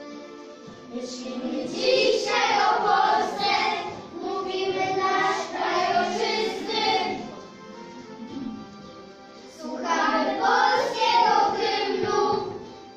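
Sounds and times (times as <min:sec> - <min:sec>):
instrumental accompaniment: 0:00.0 - 0:12.9
children singing in unison: 0:00.9 - 0:07.3, 0:09.5 - 0:12.7.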